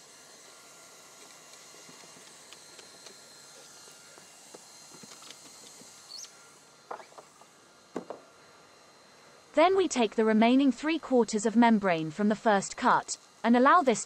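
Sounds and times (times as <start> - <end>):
hot-air gun blowing with hiss: 0.0 - 9.6.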